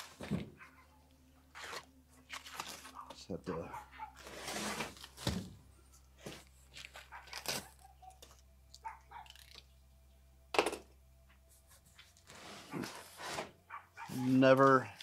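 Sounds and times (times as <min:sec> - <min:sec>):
cardboard box scraping on metal: 0:04.2 - 0:05.1, 0:12.3 - 0:13.5.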